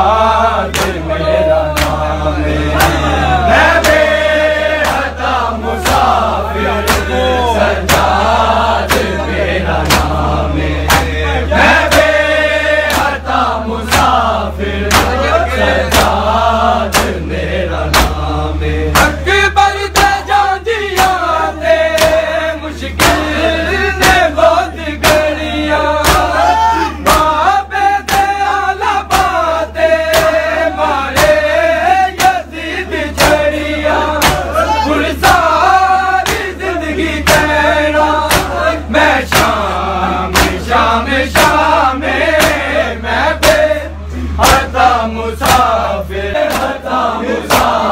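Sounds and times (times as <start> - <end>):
men chanting together: 0.0 - 47.9
hands slapping chests: 0.7 - 1.1, 1.7 - 2.1, 4.8 - 5.2, 5.8 - 6.2, 6.9 - 7.2, 7.8 - 8.2, 8.8 - 9.2, 9.8 - 10.2, 10.9 - 11.2, 12.8 - 13.2, 13.9 - 14.2, 14.9 - 15.2, 15.9 - 16.2, 16.9 - 17.2, 17.9 - 18.2, 19.9 - 20.2, 22.0 - 22.2, 23.0 - 23.3, 26.0 - 26.3, 28.0 - 28.4, 29.1 - 29.4, 30.1 - 30.4, 31.1 - 31.4, 32.2 - 32.5, 34.2 - 34.5, 36.2 - 36.6, 38.2 - 39.6, 40.3 - 40.6, 42.4 - 42.6, 44.4 - 44.7, 45.4 - 45.7, 46.4 - 46.8, 47.4 - 47.8.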